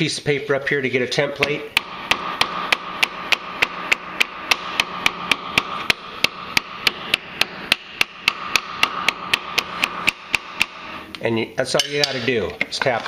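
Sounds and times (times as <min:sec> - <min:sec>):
hammer tapping on steel plate: 0:01.4 - 0:10.9.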